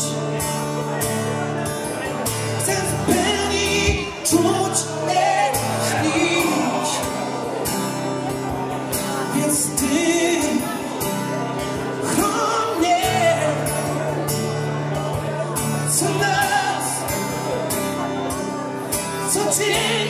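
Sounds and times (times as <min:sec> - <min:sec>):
acoustic guitar strumming: 0:00.0 - 0:20.0
man singing: 0:02.2 - 0:07.7, 0:08.8 - 0:17.8, 0:19.0 - 0:20.0.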